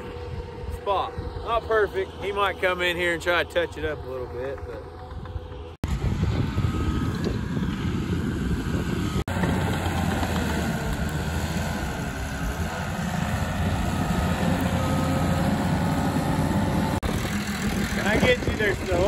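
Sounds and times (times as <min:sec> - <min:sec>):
bulldozer diesel engine running: 0:04.8 - 0:19.0.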